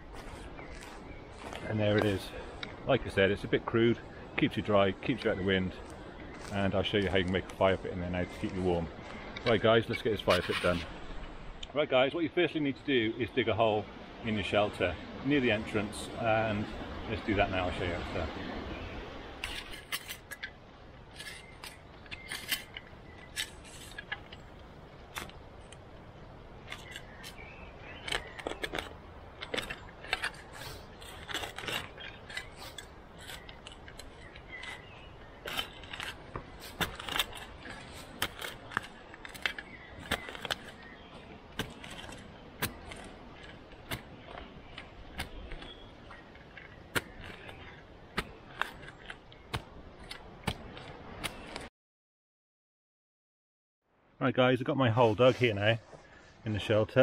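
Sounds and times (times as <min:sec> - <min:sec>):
spade digging into soil: 0:21.1 - 0:24.4, 0:26.6 - 0:51.7.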